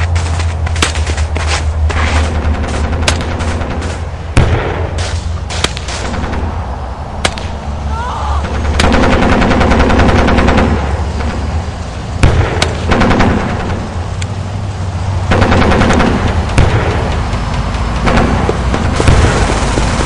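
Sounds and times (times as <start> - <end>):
low rumble of distant battle: 0.0 - 20.0
machine-gun fire: 8.4 - 11.5, 12.2 - 13.9, 15.2 - 20.0.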